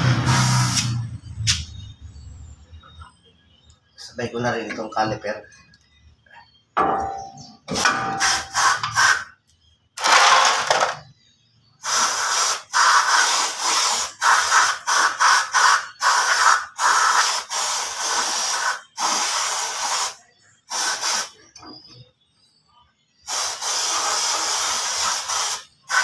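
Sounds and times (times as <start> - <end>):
aerosol spray hissing: 11.8 - 21.4, 23.3 - 26.0.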